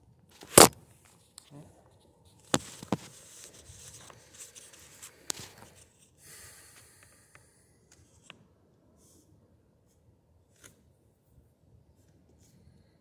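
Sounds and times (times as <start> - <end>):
camera handling rustling: 0.4 - 1.4, 2.3 - 6.1.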